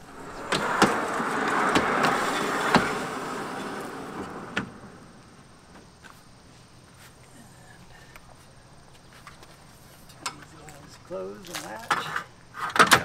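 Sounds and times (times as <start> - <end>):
tent fabric sliding and rubbing: 0.0 - 5.1.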